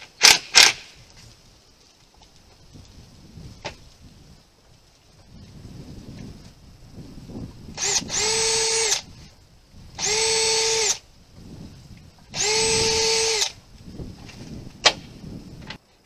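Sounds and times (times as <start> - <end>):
cordless drill whining into wood: 7.7 - 9.1, 10.0 - 11.0, 12.3 - 13.6.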